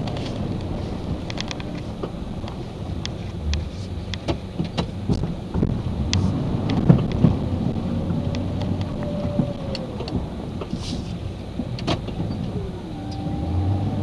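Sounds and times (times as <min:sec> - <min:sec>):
low truck engine rumble: 0:00.0 - 0:14.0.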